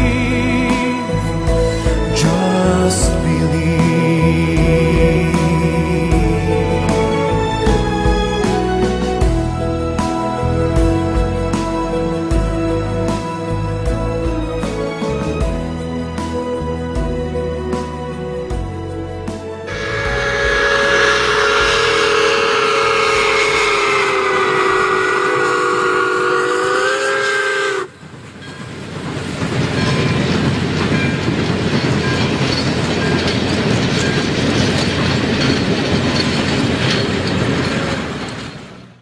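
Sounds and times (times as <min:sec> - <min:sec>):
train wheels rolling on rails: 0:18.6 - 0:39.0
steam locomotive whistle: 0:19.7 - 0:28.0.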